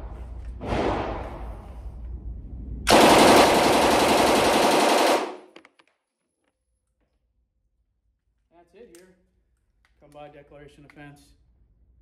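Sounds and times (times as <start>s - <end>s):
submachine gun full-auto burst: 2.9s - 5.5s.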